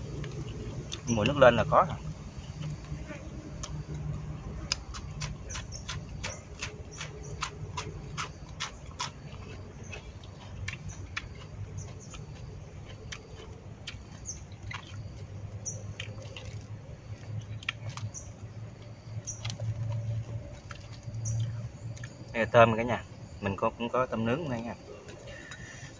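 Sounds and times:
crunchy chewing: 0.0 - 23.4, 24.2 - 25.9
chewing clicks: 3.6 - 22.3.

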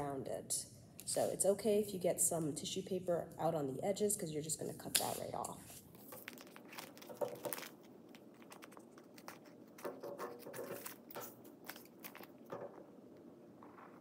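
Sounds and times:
plastic sheet crinkling: 5.0 - 12.9.

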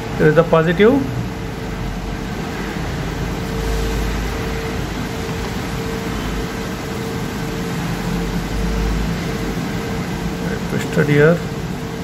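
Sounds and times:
fan-like machine hum: 0.0 - 12.0.

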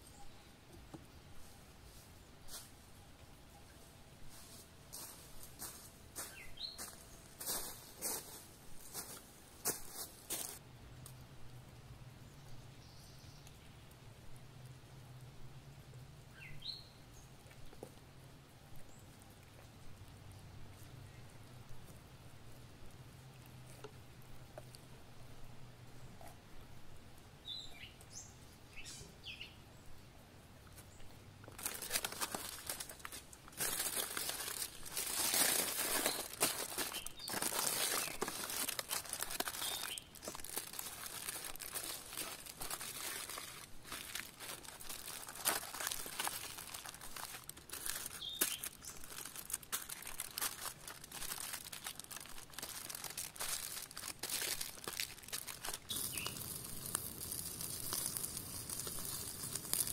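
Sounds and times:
bird chirping: 6.2 - 7.4, 16.3 - 17.3, 27.4 - 30.0, 35.9 - 41.7, 48.0 - 49.2, 55.8 - 56.5
aluminium foil crinkling: 31.4 - 59.9.

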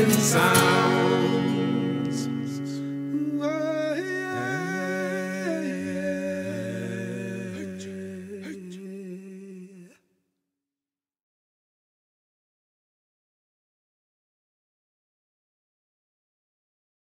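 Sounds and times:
held accompanying notes: 0.0 - 7.6
person humming a melody: 0.0 - 10.0.

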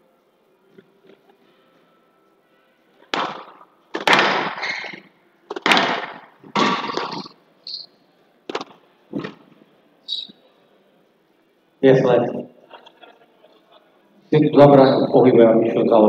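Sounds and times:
ball hitting court walls: 3.1 - 7.4, 8.5 - 9.5
squash racket strikes: 3.1 - 7.4, 8.5 - 9.5
high squeak: 4.6 - 5.0, 7.0 - 7.9, 10.1 - 10.4.

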